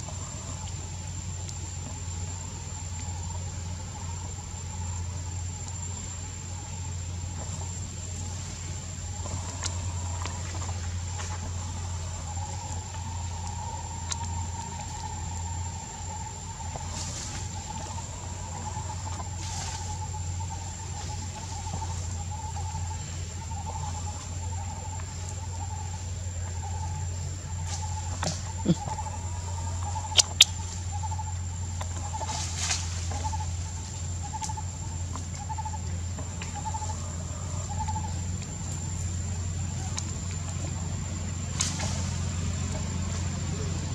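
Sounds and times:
insects trilling: 0.0 - 43.9
low steady hum: 0.0 - 43.9
rustles: 0.0 - 43.9
bird trilled call: 28.5 - 31.3
sharp clicks: 30.1 - 30.6.

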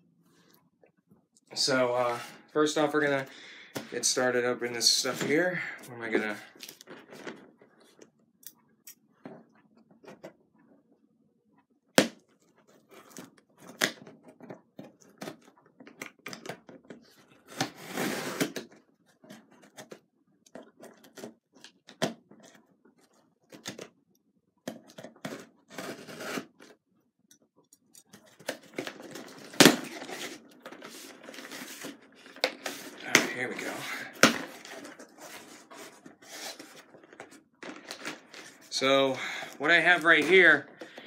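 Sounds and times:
cardboard rustling: 28.2 - 41.0.

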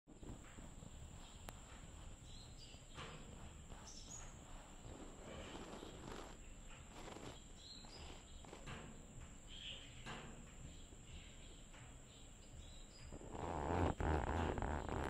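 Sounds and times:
soft rustling: 0.2 - 9.0.

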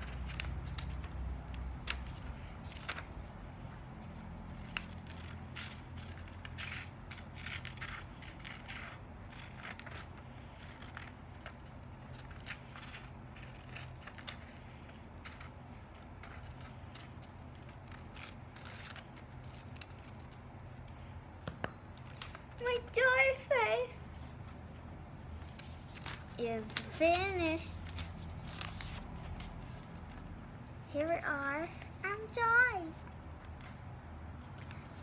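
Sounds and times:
scissors snipping paper: 4.5 - 20.5.

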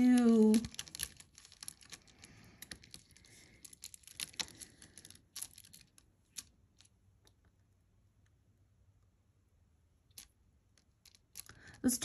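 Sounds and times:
necklace beads clicking: 0.0 - 7.6, 10.1 - 11.9.

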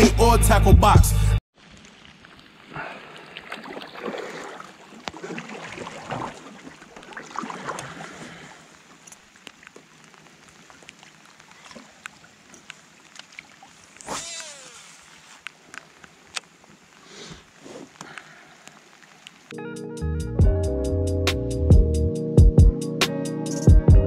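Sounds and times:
water splashing around kayak: 1.5 - 19.5
small knocks and ticks: 9.0 - 13.4.

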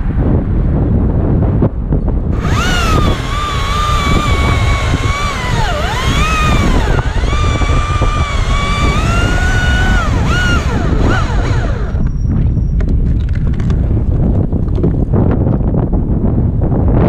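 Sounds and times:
electric chainsaw cutting wood: 2.3 - 12.1.

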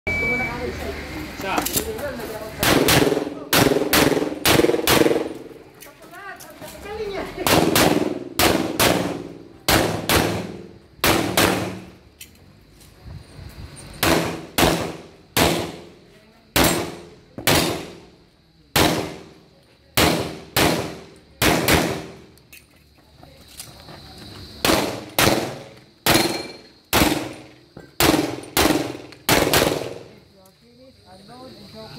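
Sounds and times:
handgun shots with echo: 16.6 - 18.0, 20.0 - 22.2.

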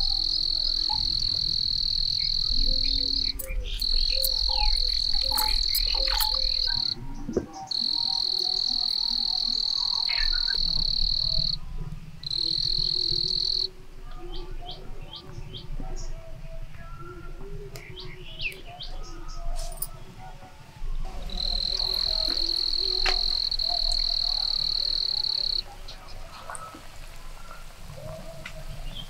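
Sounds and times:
insect high-pitched shrill: 0.0 - 7.0, 7.7 - 11.6, 12.2 - 13.7, 21.1 - 25.6
birds chirping: 0.0 - 29.0.

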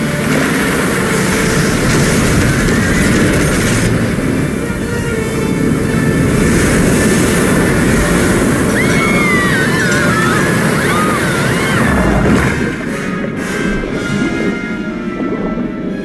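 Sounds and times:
heavy rain: 0.0 - 16.0
rush of floodwater: 0.0 - 16.0
cows screaming: 6.9 - 12.9.

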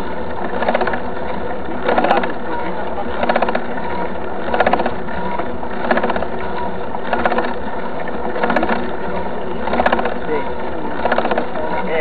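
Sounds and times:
bike freewheel hub clicking: 3.2 - 3.8, 4.4 - 7.6, 8.4 - 9.0, 9.6 - 12.0.

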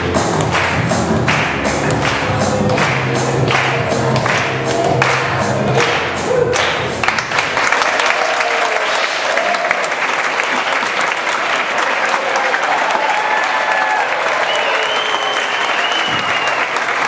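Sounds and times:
music: 0.0 - 7.9
audience applauding: 0.0 - 17.0.

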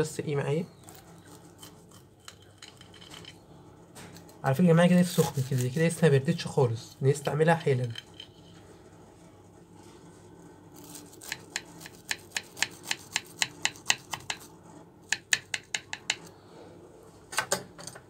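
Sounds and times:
knife crunching through crisp crust: 0.8 - 3.0, 4.9 - 6.1, 10.8 - 13.4.

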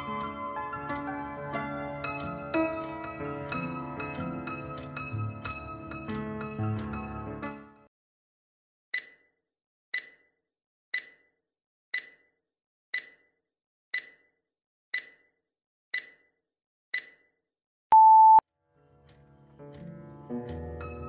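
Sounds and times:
countdown timer ticks: 9.0 - 9.2, 10.0 - 10.3, 11.0 - 11.3, 12.0 - 12.3, 13.0 - 13.3, 14.0 - 14.3, 15.0 - 15.3, 16.0 - 16.3, 17.0 - 17.2
short loud beep: 17.9 - 18.4.

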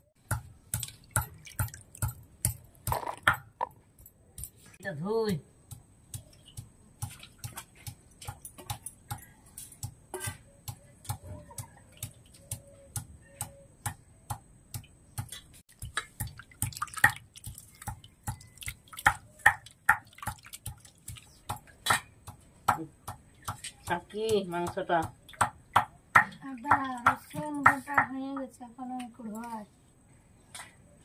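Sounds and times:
water sloshing in steel bowl: 0.5 - 3.2, 15.3 - 22.2.

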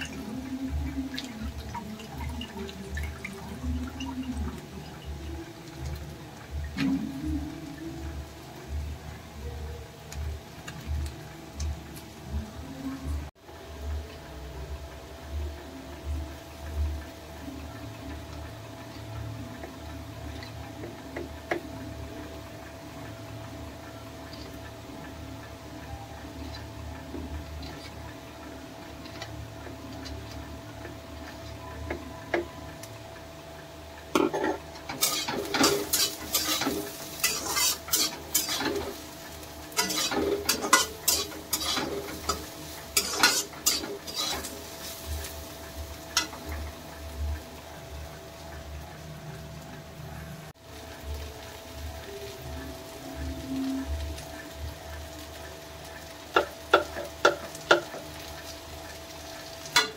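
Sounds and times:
low steady hum: 0.0 - 59.9
metal utensil scraping in pan: 34.2 - 46.7.

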